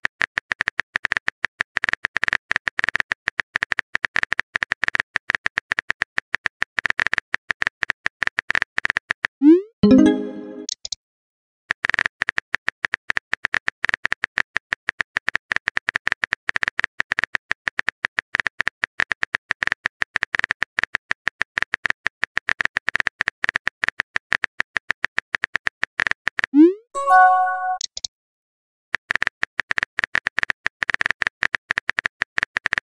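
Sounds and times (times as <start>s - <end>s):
message notification chime: 9.8s - 10.7s, 27.0s - 27.8s.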